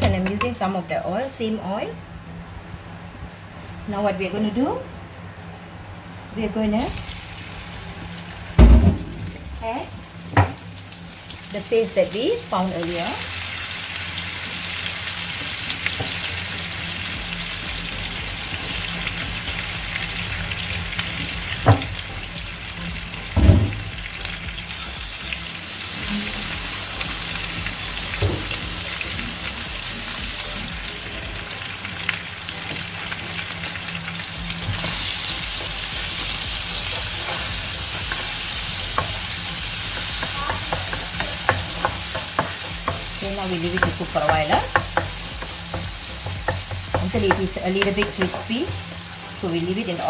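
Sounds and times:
paste sizzling in hot oil: 0:10.0 - 0:50.0.

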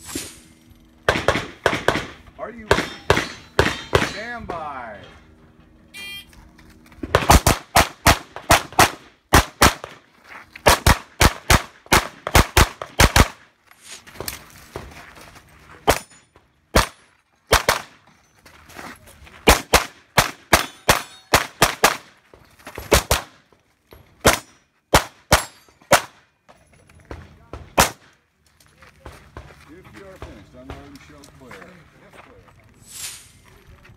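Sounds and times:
pistol shots: 0:01.0 - 0:04.2, 0:07.1 - 0:10.0, 0:10.6 - 0:13.4, 0:16.7 - 0:18.0, 0:19.4 - 0:22.1, 0:24.2 - 0:26.2, 0:27.8 - 0:28.1.

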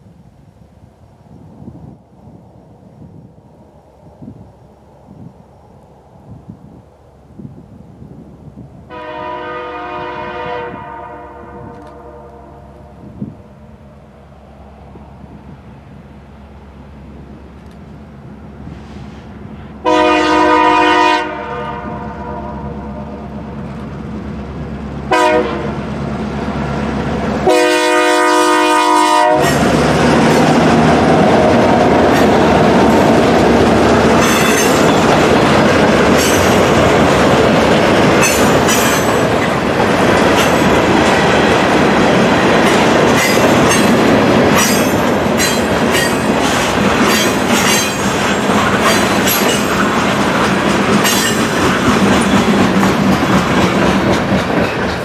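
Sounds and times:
diesel locomotive engines: 0:00.0 - 0:55.0
train horn blasts: 0:08.9 - 0:13.3, 0:19.8 - 0:23.4, 0:25.1 - 0:25.9, 0:27.4 - 0:29.7
train wheels clacking over rail joints: 0:29.4 - 0:55.0.

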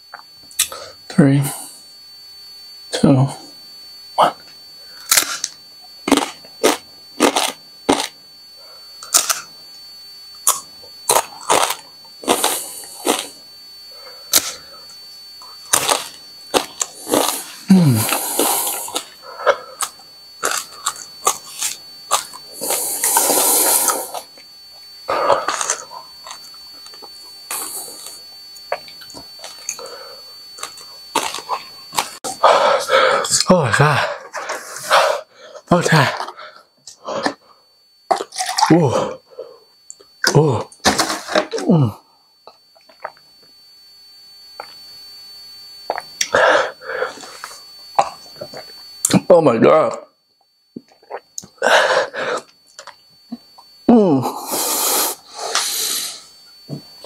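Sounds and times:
faint high whine: 0:00.0 - 0:57.0
man chewing chip: 0:05.1 - 0:08.2, 0:10.4 - 0:13.4, 0:15.4 - 0:24.4, 0:25.3 - 0:29.9, 0:30.6 - 0:32.4, 0:38.1 - 0:38.8, 0:42.8 - 0:43.2, 0:50.8 - 0:51.5
person gulping and swallowing: 0:38.1 - 0:39.1, 0:42.5 - 0:43.2, 0:45.9 - 0:46.4, 0:48.0 - 0:48.7, 0:50.8 - 0:51.6
wet mouth clicks and smacks: 0:45.9 - 0:46.1.

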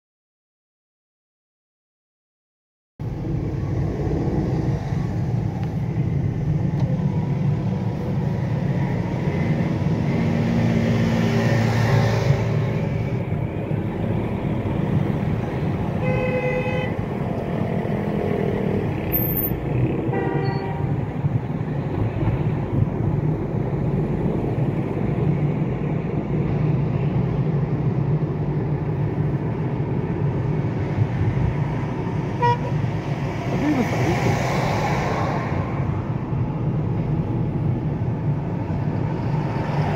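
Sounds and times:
car road and engine noise: 0:03.0 - 0:39.9
vehicle horn: 0:16.0 - 0:17.0, 0:20.1 - 0:20.9, 0:32.4 - 0:32.8.

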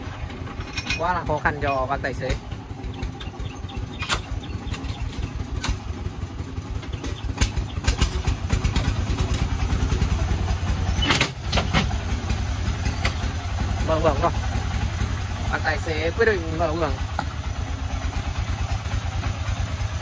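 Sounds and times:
truck diesel engine idling: 0:00.0 - 0:20.0
tailgate clattering open: 0:11.0 - 0:12.0.

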